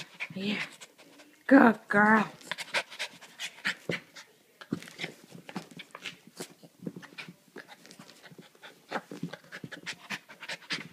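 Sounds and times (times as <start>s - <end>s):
puppy panting: 0.0s - 1.4s, 2.5s - 4.3s, 7.0s - 10.9s.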